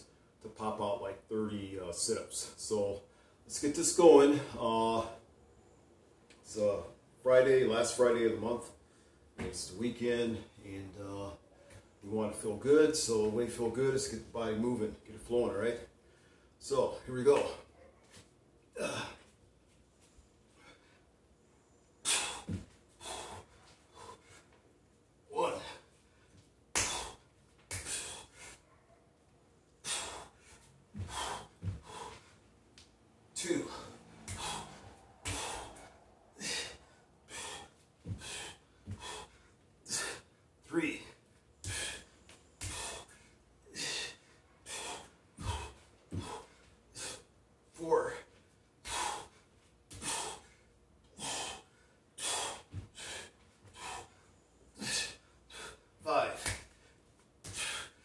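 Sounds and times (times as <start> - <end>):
man breathing hard: 22.0 - 24.7, 25.3 - 28.7, 29.8 - 32.6, 33.3 - 58.0.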